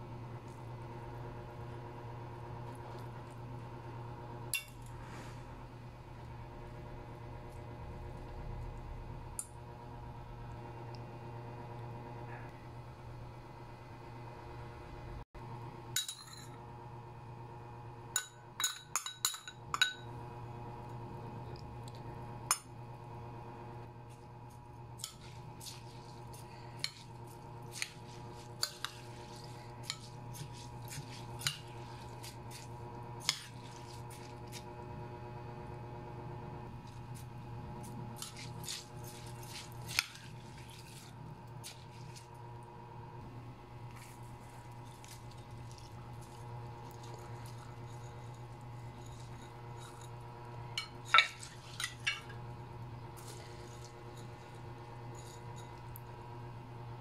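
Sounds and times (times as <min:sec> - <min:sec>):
steady low hum: 0:00.0 - 0:57.0
spoon clinking against glass bowl: 0:16.0 - 0:16.6, 0:18.2 - 0:20.1.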